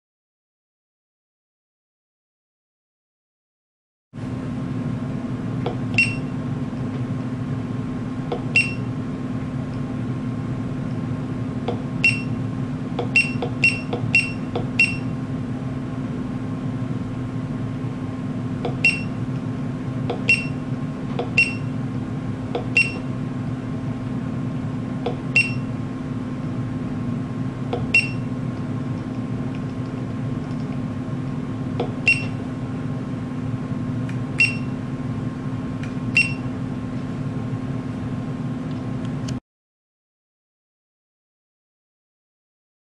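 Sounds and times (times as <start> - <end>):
steady low hum: 4.2 - 39.4
short high electronic beeps: 6.0 - 6.3, 8.6 - 8.9, 12.0 - 12.4, 13.2 - 15.1, 21.4 - 21.7, 22.8 - 23.1, 25.4 - 25.7, 27.9 - 28.3, 32.1 - 32.4, 34.4 - 34.7.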